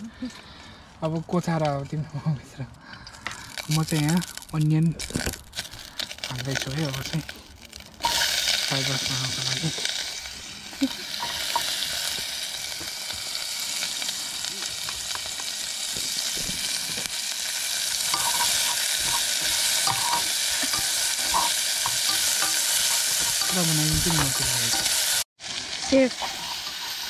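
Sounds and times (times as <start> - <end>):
onion sizzling in a pan: 3.4 - 27.0
utensil scraping a pan: 18.1 - 25.2, 25.8 - 27.0.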